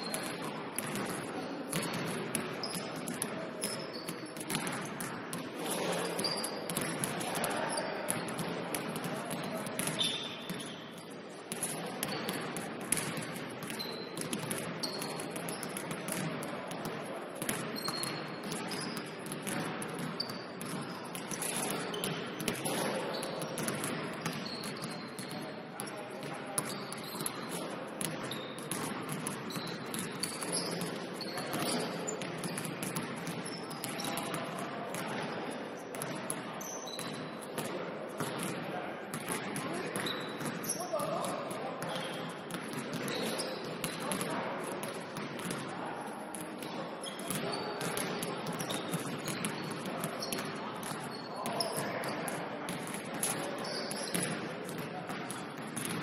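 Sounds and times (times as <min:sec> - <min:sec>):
sneaker squeaks: 0:00.0 - 0:16.5, 0:17.4 - 0:38.6, 0:39.2 - 0:44.3, 0:46.3 - 0:54.4
basketball bouncing on court: 0:00.1 - 0:10.8, 0:11.5 - 0:45.7, 0:46.3 - 0:56.0
players' voices: 0:38.5 - 0:42.4.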